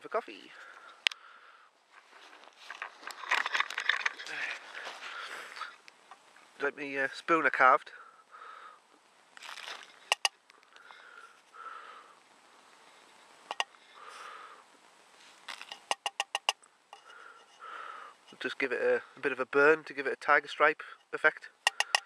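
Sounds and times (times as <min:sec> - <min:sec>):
soft nasal breaths: 0:04.1 - 0:06.6, 0:07.9 - 0:09.1, 0:09.7 - 0:15.9, 0:17.0 - 0:18.4
spoon tapping steel mug: 0:10.1 - 0:10.3, 0:15.8 - 0:16.6, 0:21.7 - 0:22.0
sharp clicks: 0:10.1 - 0:10.9, 0:13.5 - 0:13.7, 0:15.6 - 0:16.7, 0:21.7 - 0:22.0.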